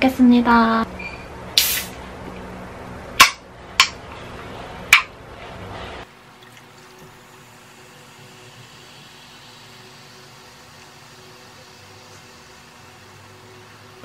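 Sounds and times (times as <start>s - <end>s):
steady background hiss: 0.0s - 14.0s
cola pouring over ice: 6.3s - 12.7s.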